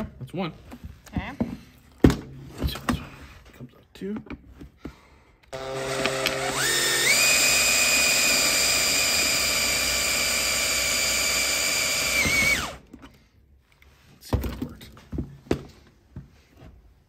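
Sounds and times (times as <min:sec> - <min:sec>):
power drill motor whine: 0:05.5 - 0:12.8.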